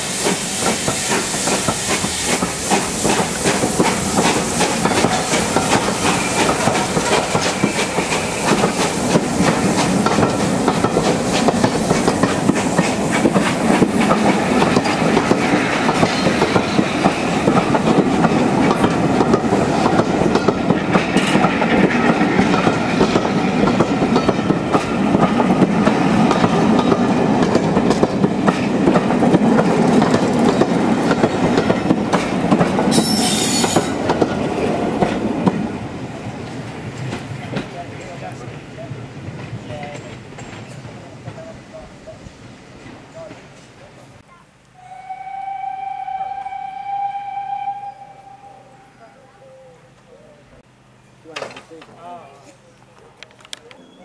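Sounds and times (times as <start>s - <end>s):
continuous train rumble: 0.0s - 44.8s, 45.5s - 54.0s
train wheels clattering over rail joints: 0.1s - 35.7s, 39.2s - 41.5s.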